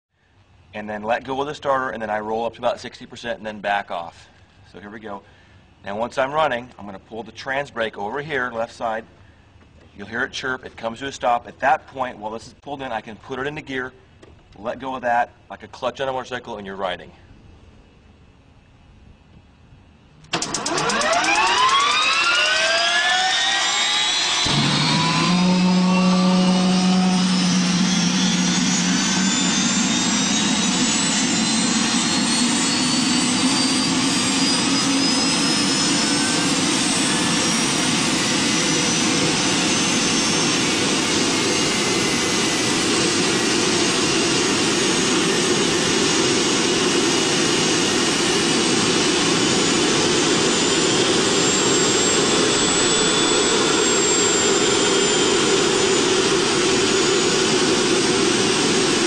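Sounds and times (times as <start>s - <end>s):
gas turbine whine: 0.1s - 11.1s, 17.0s - 59.0s
rushing exhaust: 20.3s - 59.0s.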